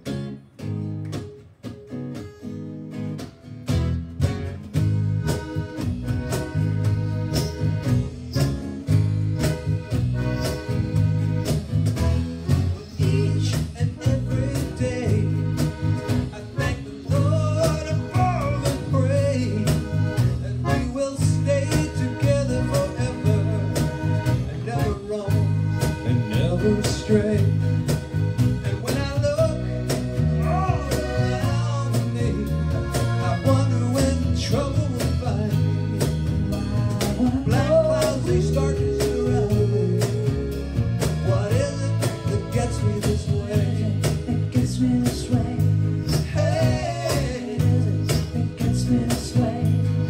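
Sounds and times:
accordion: 0.0 - 50.0
electric bass: 0.0 - 50.0
strummed acoustic guitar: 0.0 - 50.0
steady beat: 3.1 - 50.0
person singing: 12.8 - 15.5, 16.3 - 27.6, 28.6 - 35.8, 36.5 - 40.6, 41.2 - 50.0.

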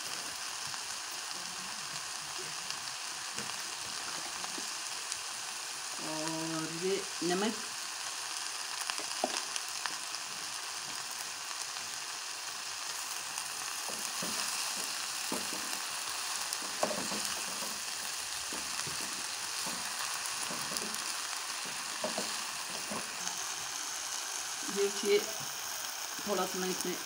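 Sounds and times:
food sizzling in frying pan: 0.0 - 27.0
spatula scraping pan: 13.7 - 23.6.

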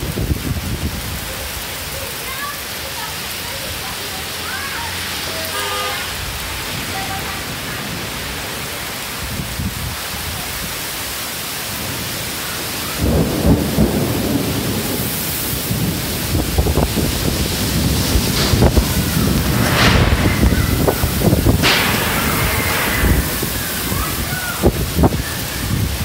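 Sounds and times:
low rumble of thunder: 0.0 - 1.8, 11.7 - 26.0
heavy rain pouring: 0.0 - 26.0.

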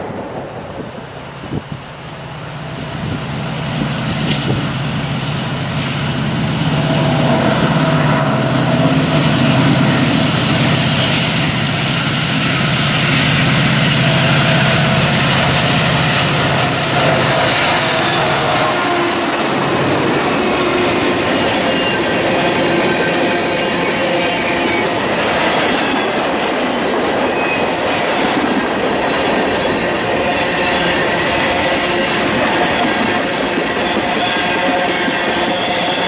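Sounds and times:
diesel locomotives droning: 0.0 - 36.0
steady whine: 3.6 - 28.6.

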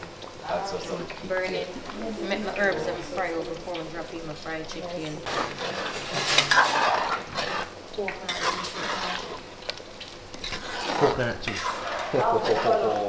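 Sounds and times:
metal ladle scraping a pot: 5.2 - 9.4, 10.3 - 13.0.

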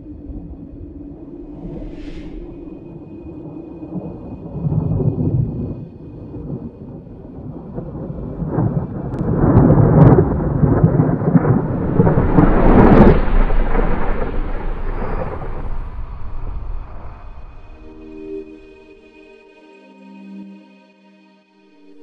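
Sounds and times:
thunder rumbling: 0.0 - 18.7
thunder cracks: 1.1 - 18.2.

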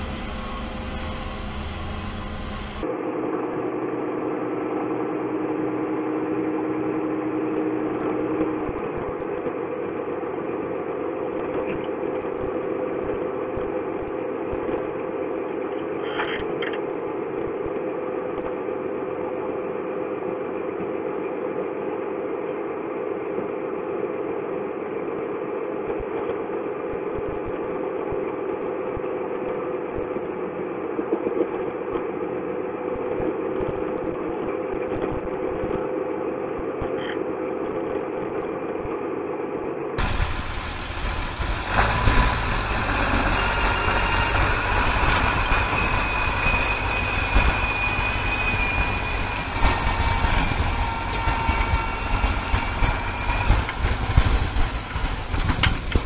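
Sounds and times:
tractor diesel engine running: 0.0 - 2.9, 40.0 - 56.0.

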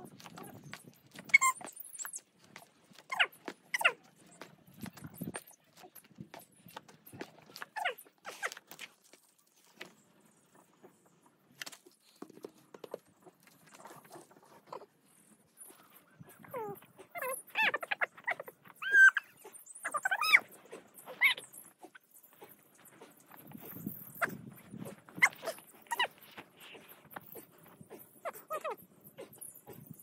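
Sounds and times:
dog whining: 1.2 - 2.2, 3.1 - 4.0, 16.3 - 20.5, 23.6 - 29.8.

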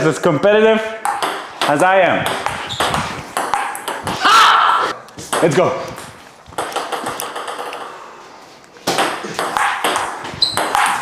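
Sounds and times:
table tennis ball clicking: 6.6 - 7.9.

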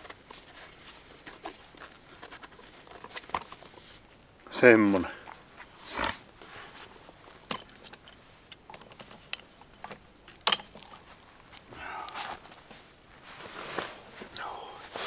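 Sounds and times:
soft rustle: 0.0 - 15.0.

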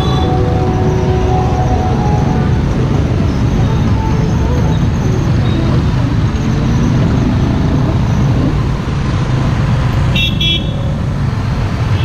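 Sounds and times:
vehicle horn toots: 0.0 - 0.5, 10.2 - 10.7
road traffic rumble: 0.0 - 12.0.

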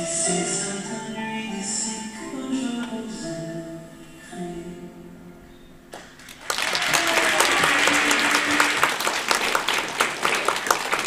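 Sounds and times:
audience applause: 6.2 - 11.0.

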